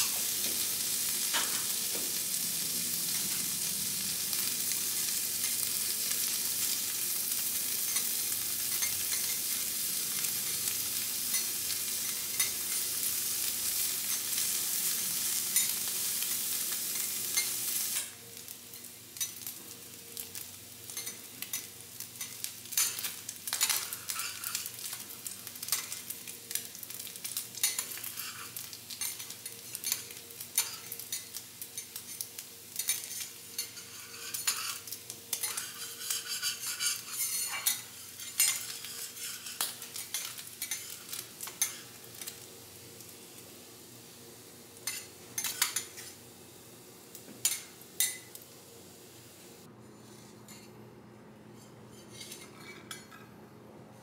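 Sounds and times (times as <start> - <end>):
food sizzling on a griddle: 0.0 - 50.2
cooking utensils clicking and scraping: 7.6 - 9.7, 10.4 - 14.6, 15.4 - 15.9, 20.9 - 42.4, 44.8 - 46.2, 47.2 - 48.4, 49.9 - 50.7, 51.6 - 53.3.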